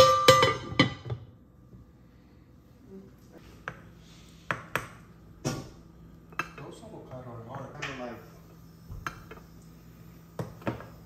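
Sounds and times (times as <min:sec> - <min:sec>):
dishes clinking: 0:00.0 - 0:01.2.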